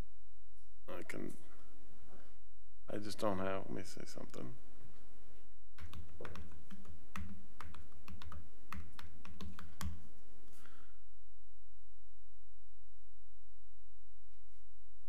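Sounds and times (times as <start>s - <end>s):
computer keyboard typing: 5.8s - 10.0s.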